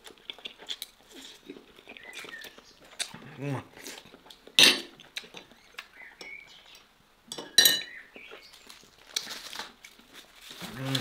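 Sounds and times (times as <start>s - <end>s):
cutlery clinking on tableware: 7.3s - 7.9s.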